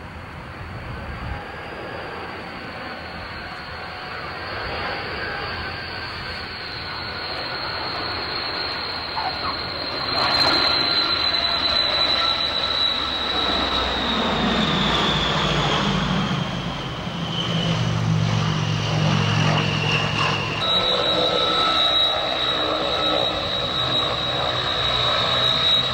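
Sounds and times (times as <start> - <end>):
propeller drone: 0.0 - 25.9
turboprop engines whining: 0.0 - 25.9.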